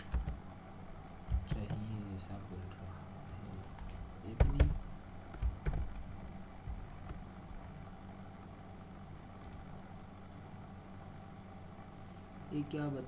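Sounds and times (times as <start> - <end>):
computer keyboard clicks: 0.0 - 0.4, 1.3 - 1.8, 2.5 - 6.1, 9.4 - 9.6
steady low hum: 0.0 - 13.0.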